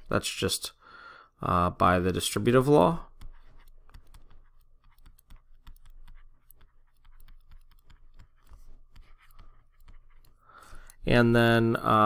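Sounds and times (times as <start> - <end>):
stylus tapping on touchscreen: 3.1 - 11.0.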